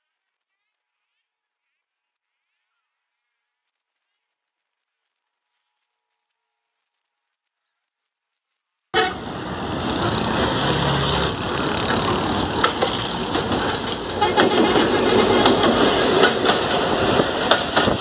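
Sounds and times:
diesel train approaching: 9.0 - 18.0
horn toots: 9.0 - 18.0
road traffic: 9.0 - 18.0.

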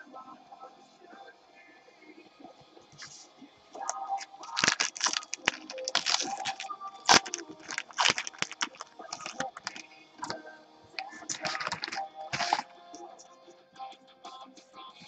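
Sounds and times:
wrapper tearing and crinkling: 3.8 - 10.4, 11.3 - 12.7.

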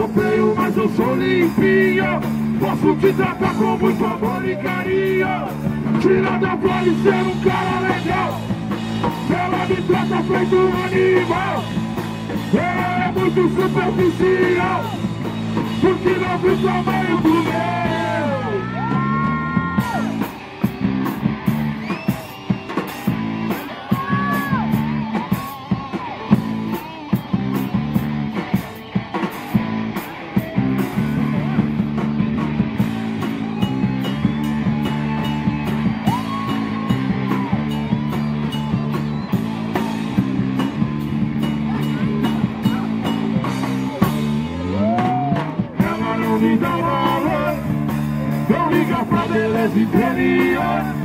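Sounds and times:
man singing: 0.0 - 11.8, 12.4 - 20.2, 45.6 - 51.0
bass guitar: 0.0 - 51.0
drum kit: 0.0 - 51.0
electric guitar: 0.0 - 51.0.

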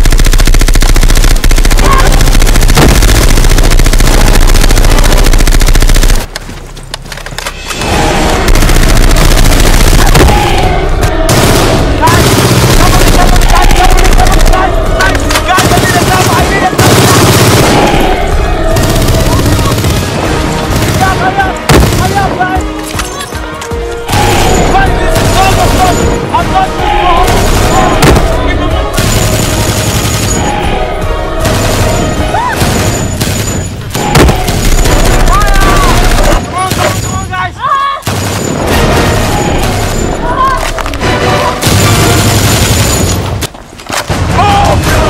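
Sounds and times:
sharp booms: 0.0 - 5.4, 31.4 - 37.0
automatic gunfire bursts: 0.0 - 6.3, 8.5 - 22.3, 29.0 - 30.4
dramatic action film music: 0.0 - 45.0.

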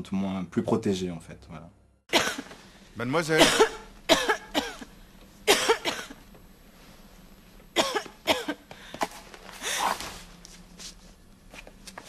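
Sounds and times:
woman coughing: 2.1 - 2.5, 3.4 - 4.9, 5.5 - 6.2, 7.8 - 8.7.

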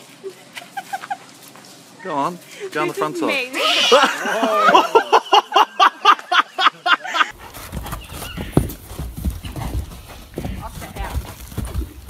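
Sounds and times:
woman laughing hard: 0.3 - 1.3, 3.5 - 7.3
horse hooves on sand: 7.3 - 12.0.

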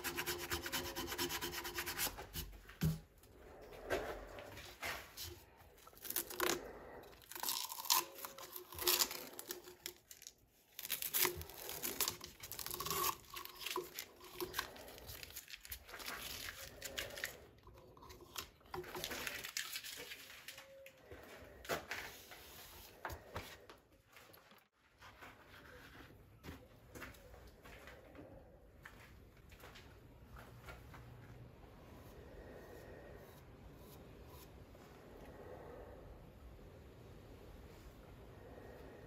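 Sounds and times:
tape and plastic film tearing: 7.2 - 17.4, 18.8 - 20.6.

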